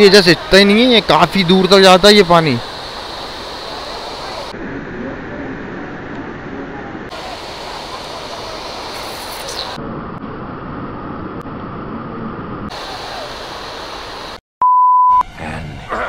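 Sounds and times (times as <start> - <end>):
water rushing over rocks: 7.1 - 9.8, 12.7 - 14.4.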